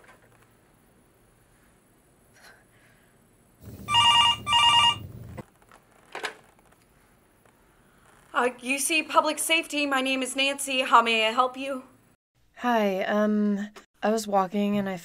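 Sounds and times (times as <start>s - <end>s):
desk telephone ringing: 3.7s - 5.4s.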